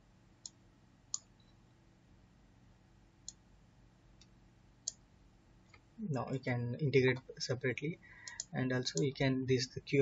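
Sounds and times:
faint room hum: 0.0s - 10.0s
computer mouse clicks: 0.4s - 1.4s, 3.2s - 3.4s, 4.2s - 5.0s, 8.2s - 9.2s.

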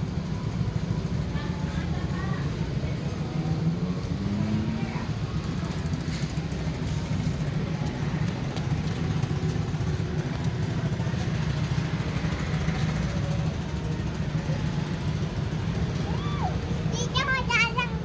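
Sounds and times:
small engine idling: 0.0s - 18.0s.

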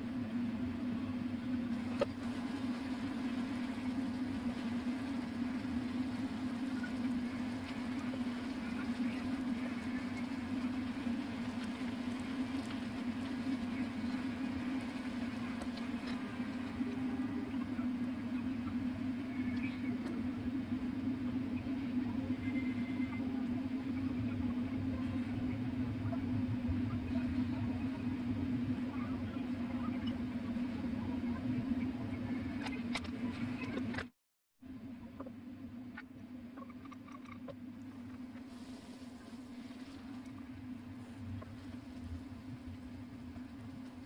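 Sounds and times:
steady low hum: 0.0s - 44.0s
chicken wings sizzling in a pan: 1.7s - 20.0s.

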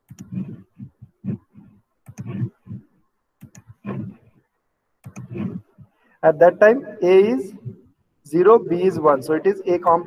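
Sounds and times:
computer mouse clicking: 0.0s - 4.4s, 5.0s - 5.9s.

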